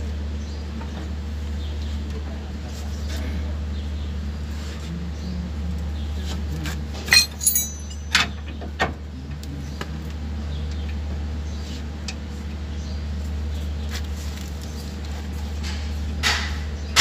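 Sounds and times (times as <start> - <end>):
metal tools clinking: 7.1 - 8.3.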